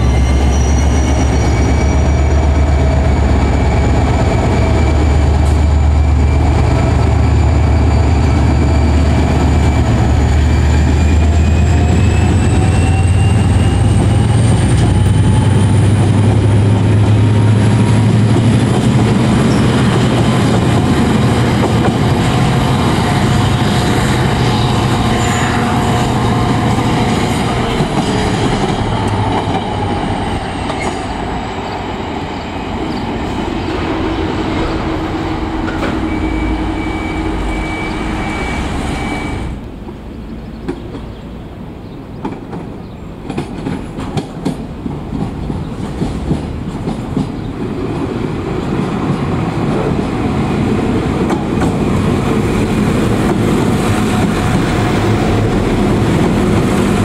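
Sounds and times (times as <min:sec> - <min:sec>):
high wheel squeal: 0:00.0 - 0:16.1, 0:19.3 - 0:39.6
locomotive engine rumble: 0:00.0 - 0:57.0.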